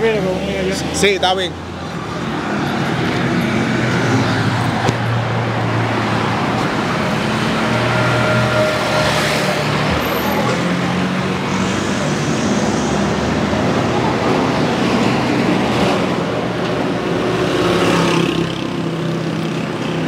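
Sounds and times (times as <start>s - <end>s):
vehicle engines running: 0.0s - 20.0s.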